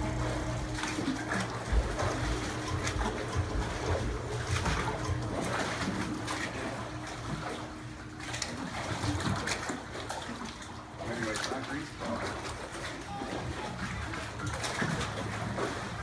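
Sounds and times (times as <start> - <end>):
electric motor humming: 0.0 - 8.7
water trickling and splashing: 0.0 - 16.0.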